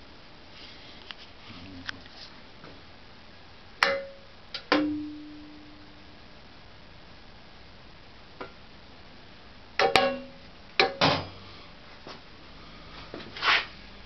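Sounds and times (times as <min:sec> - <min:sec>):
metallic knocks on sheet metal: 0:03.8 - 0:05.2, 0:09.8 - 0:11.3.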